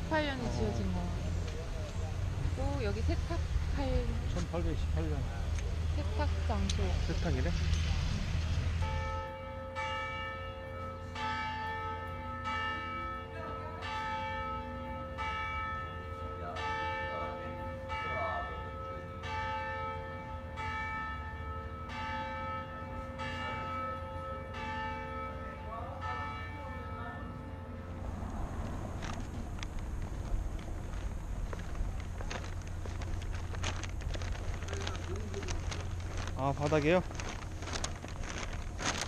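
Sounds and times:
church bells ringing: 8.8 - 30.2.

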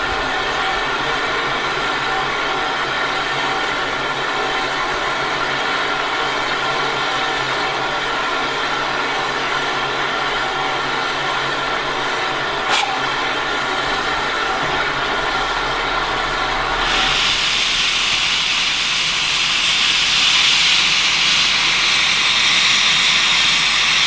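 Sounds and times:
steam hissing: 11.8 - 24.0.

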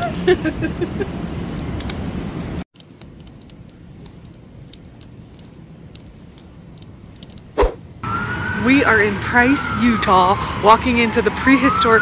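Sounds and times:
fire low rumble: 0.5 - 11.9
wood fire crackling and popping: 2.8 - 7.6.

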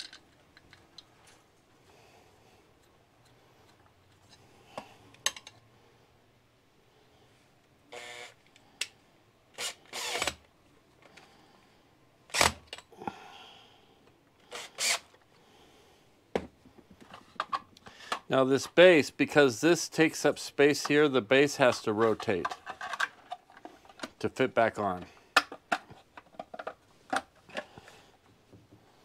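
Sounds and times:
cordless drill driving screws: 7.9 - 8.4, 9.6 - 10.4, 14.5 - 15.1.

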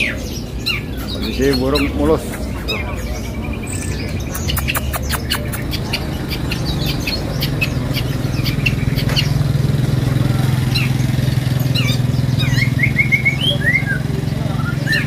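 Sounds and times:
songbirds chirping: 0.0 - 15.0.

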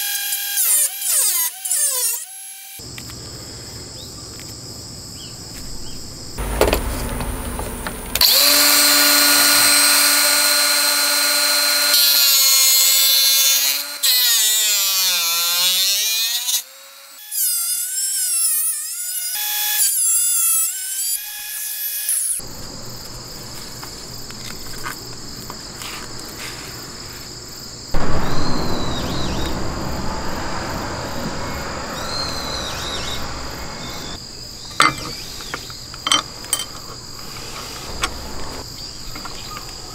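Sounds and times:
angle grinder cutting metal: 6.4 - 16.7.

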